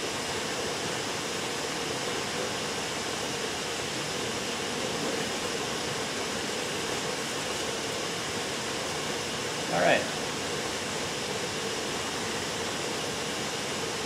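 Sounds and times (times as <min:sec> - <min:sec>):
ventilation hiss: 0:00.0 - 0:14.0.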